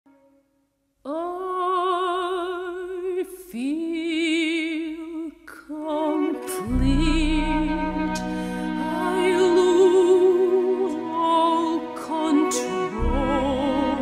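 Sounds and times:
woman singing opera: 0:01.1 - 0:14.0
singer breathing: 0:08.2 - 0:08.8.

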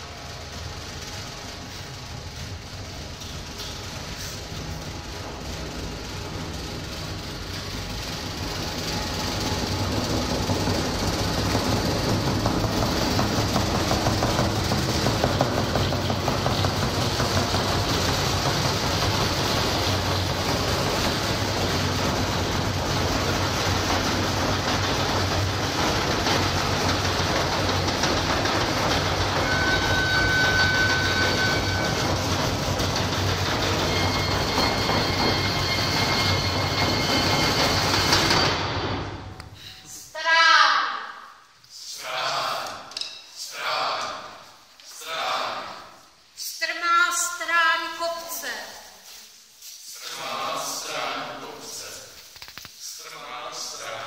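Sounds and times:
percussion rumble: 0:00.0 - 0:39.7
high ringing tones: 0:28.8 - 0:39.8.

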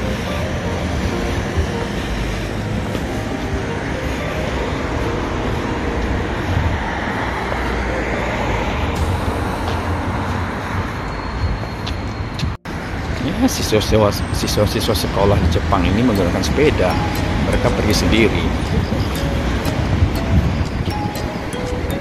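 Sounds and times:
city street traffic rumble: 0:00.0 - 0:22.0.

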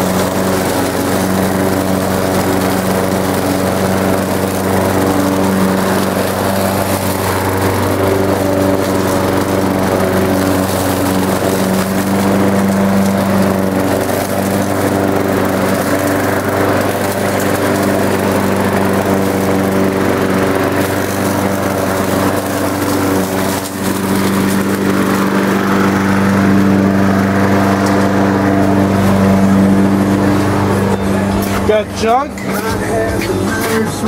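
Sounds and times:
lawn mower engine running: 0:00.0 - 0:34.0.

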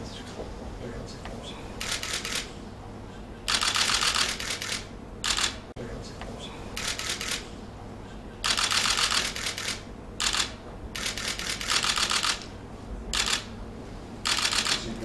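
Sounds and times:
camera shutters clicking: 0:01.8 - 0:02.5, 0:03.5 - 0:05.6, 0:06.8 - 0:07.4, 0:08.4 - 0:12.5, 0:13.2 - 0:13.5, 0:14.3 - 0:14.8.

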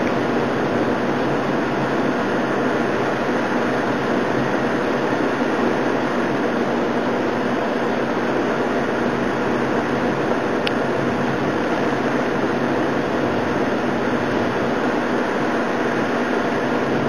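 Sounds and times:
heavy rain roaring: 0:00.0 - 0:17.0.

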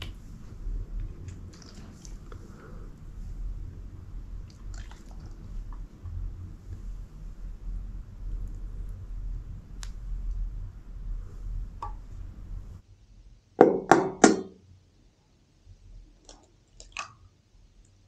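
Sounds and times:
low hum: 0:00.0 - 0:12.8.

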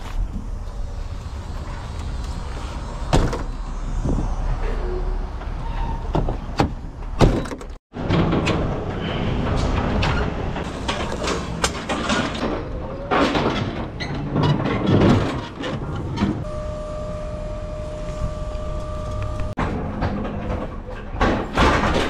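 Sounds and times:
metal rattling and clanking: 0:05.4 - 0:16.4.

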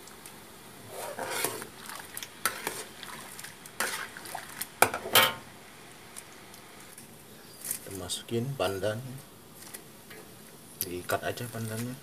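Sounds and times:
spatula scraping a wok: 0:00.8 - 0:01.7, 0:02.4 - 0:03.0, 0:03.8 - 0:04.2.

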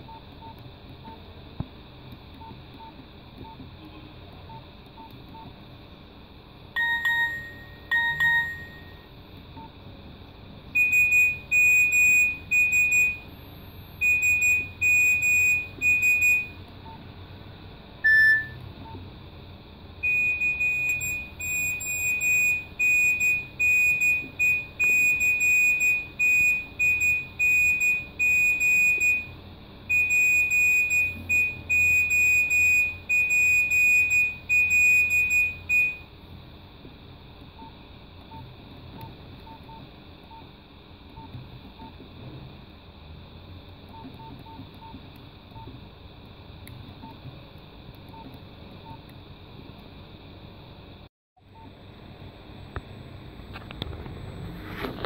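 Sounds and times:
phone key-press beeps: 0:06.8 - 0:09.0, 0:18.0 - 0:19.0, 0:20.0 - 0:29.3
rapid high electronic beeps: 0:06.8 - 0:09.1, 0:10.8 - 0:13.3, 0:14.0 - 0:16.6, 0:18.0 - 0:18.6, 0:20.0 - 0:36.0.

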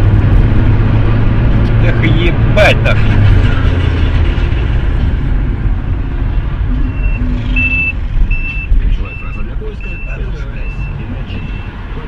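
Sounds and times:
car engine and road noise: 0:00.0 - 0:12.0
high electronic beep: 0:06.7 - 0:11.8.

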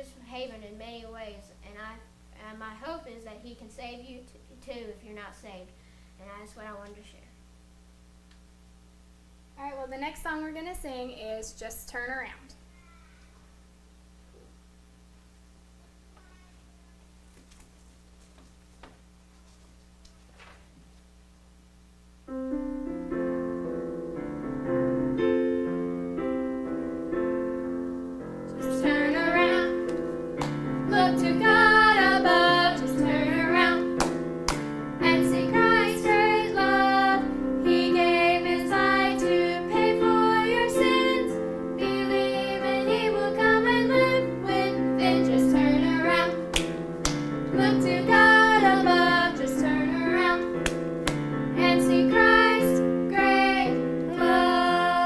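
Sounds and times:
piano accompaniment: 0:22.3 - 0:55.0
voices singing: 0:28.6 - 0:29.9, 0:30.7 - 0:34.1, 0:35.0 - 0:46.5, 0:47.5 - 0:50.6, 0:51.6 - 0:55.0.

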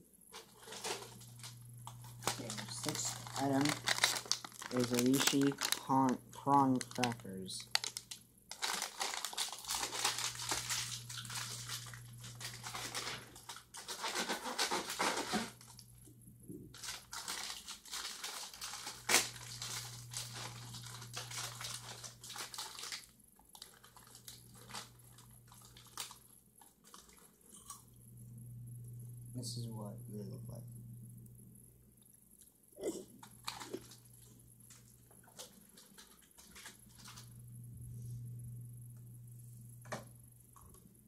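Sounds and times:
low steady hum: 0:00.0 - 0:41.0
plastic snack bag crinkling: 0:00.3 - 0:15.9, 0:16.7 - 0:27.8, 0:33.1 - 0:37.4.

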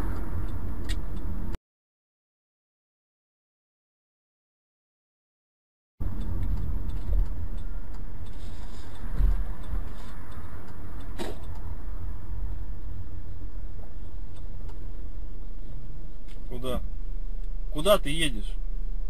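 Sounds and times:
car driving rumble: 0:00.0 - 0:01.6, 0:06.0 - 0:19.0
sharp click: 0:00.8 - 0:01.1.

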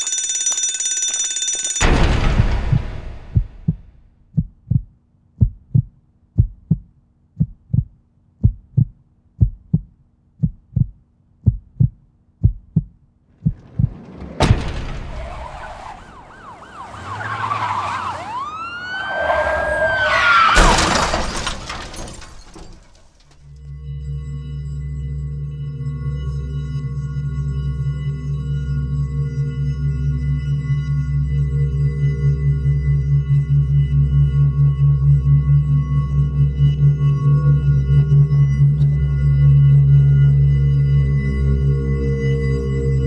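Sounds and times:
sudden crash: 0:01.8 - 0:04.2, 0:13.3 - 0:23.5
low heartbeat thumps: 0:02.1 - 0:14.3
police sirens wailing: 0:13.4 - 0:22.2.

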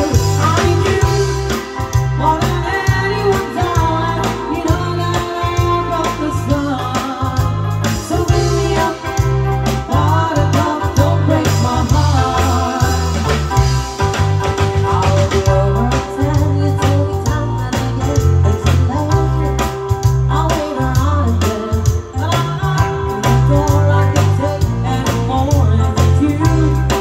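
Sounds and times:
woman singing: 0:00.0 - 0:13.7, 0:14.8 - 0:27.0
heavy bass and drum beat: 0:00.0 - 0:27.0
live pop band playing: 0:00.0 - 0:27.0.

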